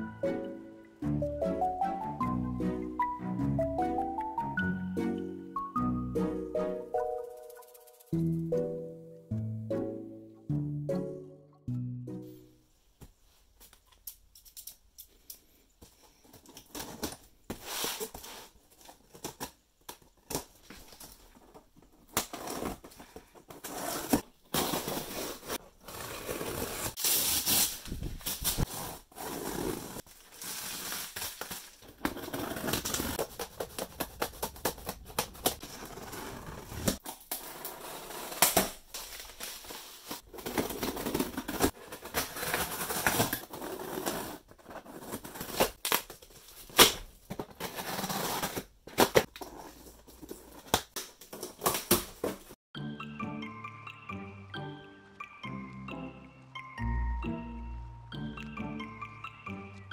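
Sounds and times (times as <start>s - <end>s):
cardboard rustling: 16.1s - 52.6s
tape crinkling: 30.0s - 35.7s.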